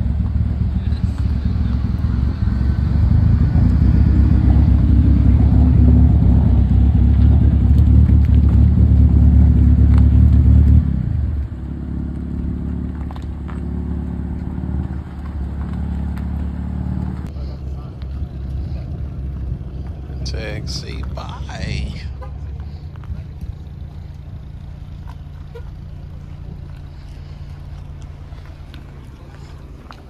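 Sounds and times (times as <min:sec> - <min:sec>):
car engine revving and idling: 0:00.0 - 0:30.0.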